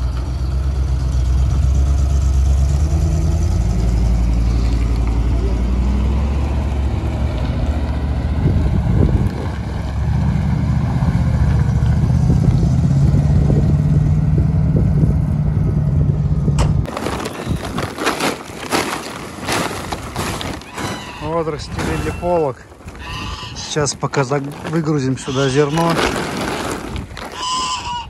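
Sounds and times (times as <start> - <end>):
truck engine running: 0.0 - 16.9
plastic tarpaulin rustling: 16.8 - 28.0.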